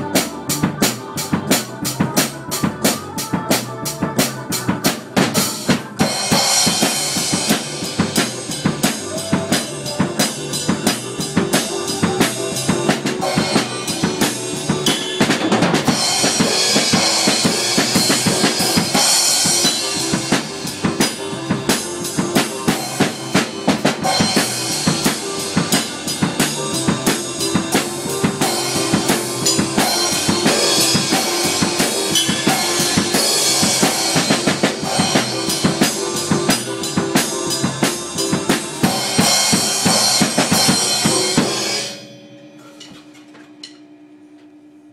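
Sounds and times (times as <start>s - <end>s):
fast acoustic drum kit beat: 0.0s - 42.0s.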